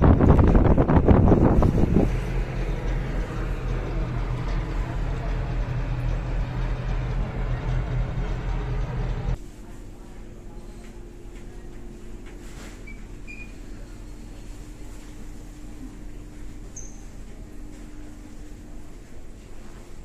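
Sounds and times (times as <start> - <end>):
low engine hum: 0.0 - 9.4
wind buffeting microphone: 0.0 - 9.4.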